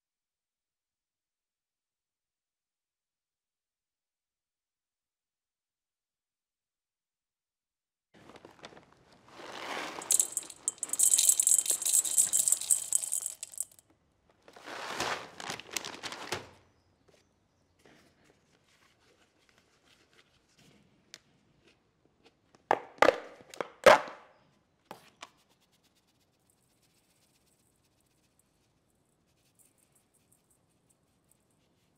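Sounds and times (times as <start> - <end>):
pellets rattling in metal bowl: 9.4 - 13.8.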